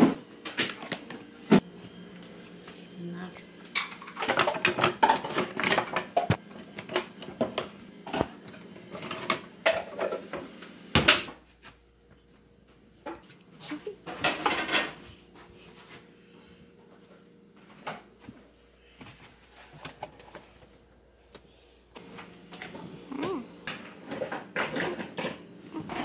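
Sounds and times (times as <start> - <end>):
kitchen utensils clattering: 3.8 - 7.0, 8.9 - 10.4, 14.0 - 15.0, 23.6 - 26.0.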